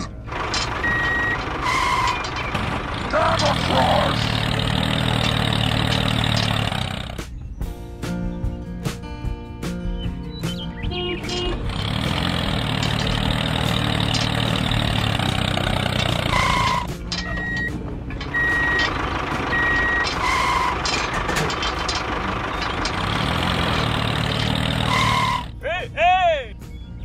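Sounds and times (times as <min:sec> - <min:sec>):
vehicle engine running: 0:00.0 - 0:26.0
short electronic beeps: 0:00.8 - 0:02.5, 0:16.3 - 0:18.9, 0:19.5 - 0:20.7
two-tone electronic beep: 0:19.5 - 0:20.6.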